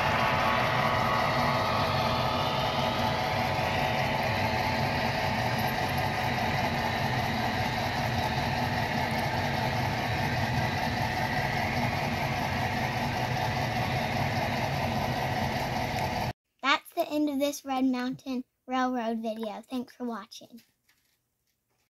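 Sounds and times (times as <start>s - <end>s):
model train humming: 0.0s - 16.3s.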